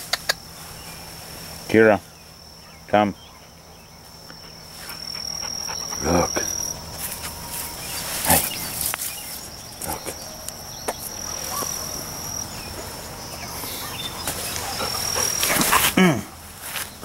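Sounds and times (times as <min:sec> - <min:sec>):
high-pitched insect drone: 0:00.4 - 0:16.2
brambles rustling and snapping: 0:14.2 - 0:16.0.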